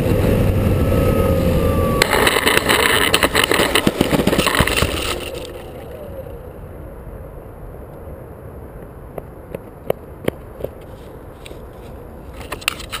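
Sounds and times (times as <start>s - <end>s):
wind rumble on microphone: 0.0s - 13.0s
model plane propeller winding down: 0.1s - 6.4s
sharp clicks and knocks: 2.0s - 5.9s.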